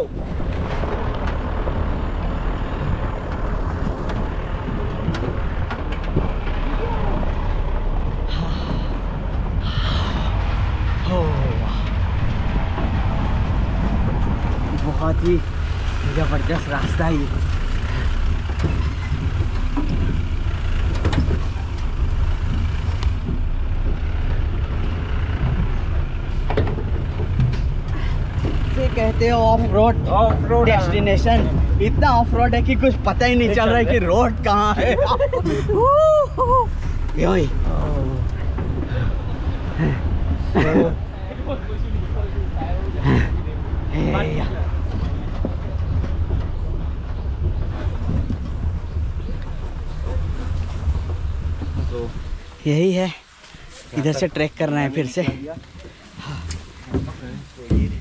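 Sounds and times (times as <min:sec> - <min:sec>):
vehicle engine running: 0:00.0 - 0:52.8
knocks and rattles: 0:00.2 - 0:11.0, 0:11.7 - 0:35.1, 0:44.4 - 0:52.5, 0:55.2 - 0:58.0.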